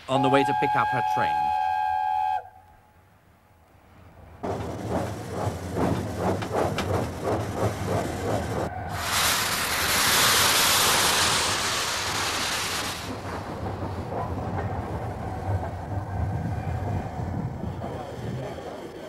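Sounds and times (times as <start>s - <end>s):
low rumble of engine and wheels: 4.0s - 9.1s, 13.0s - 19.0s
steam hissing from locomotive: 8.9s - 13.3s.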